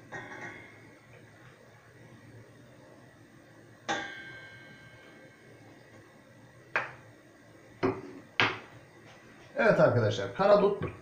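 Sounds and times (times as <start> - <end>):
kitchenware clinking: 0.1 - 0.8.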